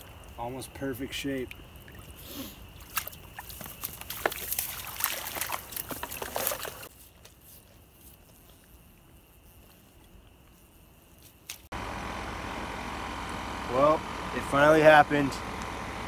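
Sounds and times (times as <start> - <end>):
small splashes of shallow water: 0.0 - 6.9
dry grass rustling and crackling: 1.6 - 11.7.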